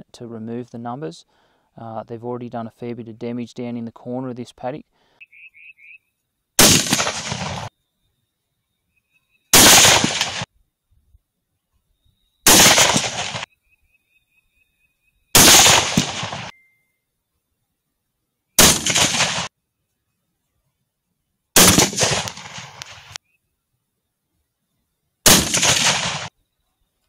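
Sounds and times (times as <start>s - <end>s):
rifle shots with echo: 6.6s - 7.7s, 9.5s - 10.5s, 12.5s - 13.5s, 15.4s - 16.5s, 18.6s - 19.5s, 21.6s - 23.2s, 25.2s - 26.3s.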